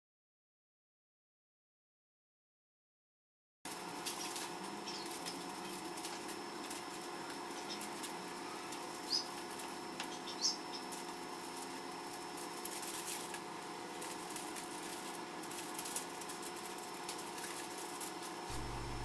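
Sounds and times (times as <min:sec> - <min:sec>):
aluminium foil crinkling: 0:03.7 - 0:19.0
faint hum: 0:17.8 - 0:19.0.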